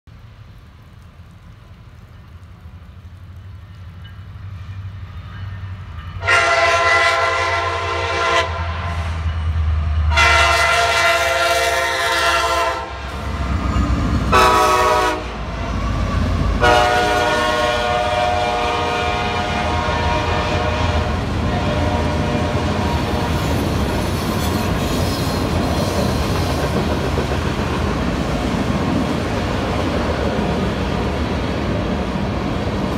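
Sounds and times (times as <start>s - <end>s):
freight train rumble: 0.1s - 32.9s
locomotive air horn blasts: 6.2s - 9.1s, 10.1s - 13.3s, 14.3s - 15.4s, 16.6s - 23.4s.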